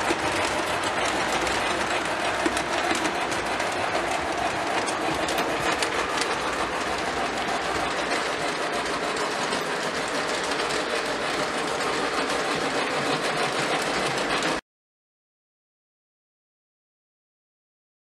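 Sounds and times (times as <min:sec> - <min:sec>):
model train rumbling on track: 0:00.0 - 0:14.6.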